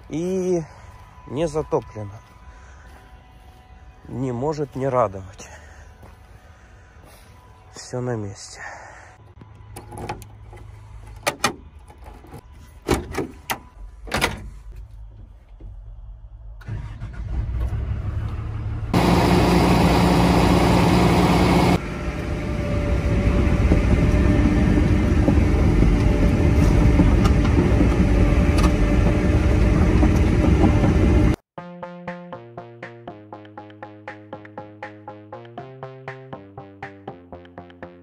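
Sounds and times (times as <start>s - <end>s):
diesel engine running: 16.6s - 31.4s.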